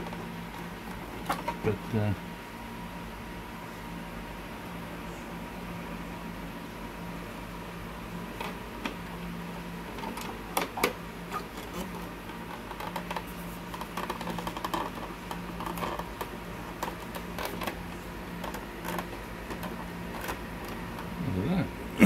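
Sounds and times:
steady low hum: 0:00.0 - 0:22.0
plastic parts clicking and rattling: 0:10.0 - 0:17.8.

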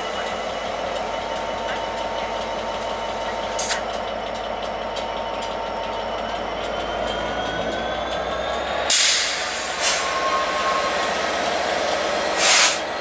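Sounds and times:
diesel locomotive engine idling: 0:00.0 - 0:13.0
air hiss: 0:12.4 - 0:12.8.

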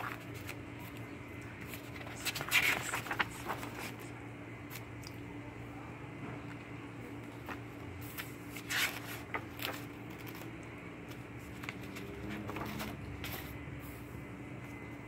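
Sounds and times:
paper pages rustling: 0:00.0 - 0:04.1, 0:07.2 - 0:13.6.

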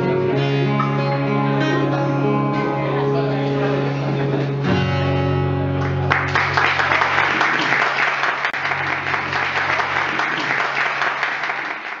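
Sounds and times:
acoustic guitar chord ringing: 0:00.0 - 0:06.8
audience applauding: 0:05.8 - 0:12.0.

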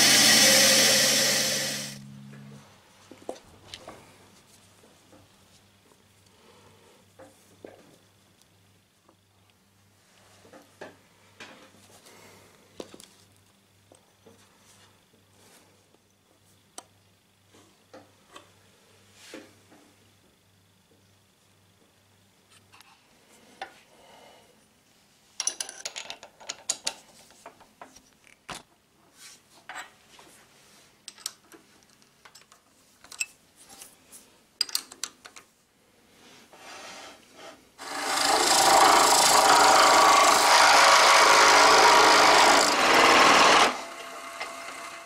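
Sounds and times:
lathe spinning with a hiss: 0:00.0 - 0:02.0, 0:36.3 - 0:45.0.

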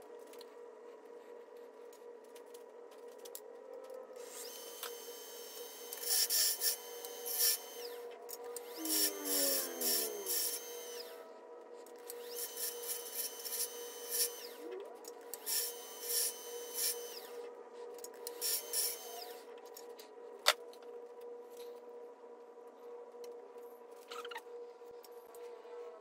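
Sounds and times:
lathe humming: 0:04.3 - 0:11.2, 0:12.1 - 0:14.6.

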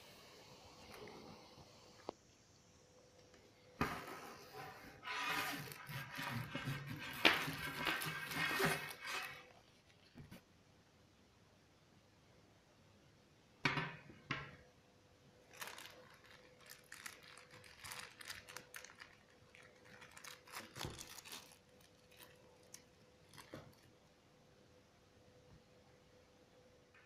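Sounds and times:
plastic bag crinkling: 0:05.0 - 0:10.2, 0:15.4 - 0:24.0.

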